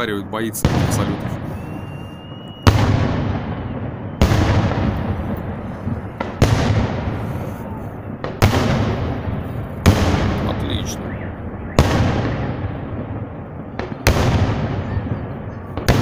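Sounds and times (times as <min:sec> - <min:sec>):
firework shells bursting: 0:00.7 - 0:10.8.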